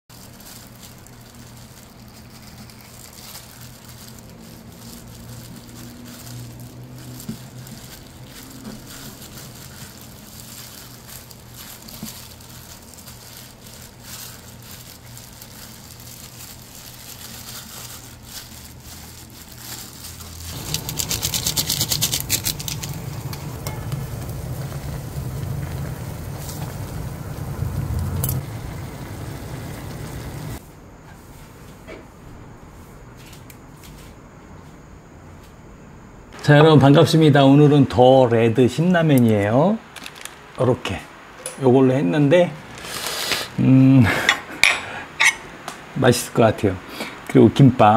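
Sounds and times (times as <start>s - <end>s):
plastic gloves crinkling: 0.1s - 30.6s, 38.8s - 41.3s, 42.3s - 43.7s
pot bubbling and hissing: 0.1s - 30.6s, 42.4s - 45.7s
low steady hum: 0.1s - 31.0s.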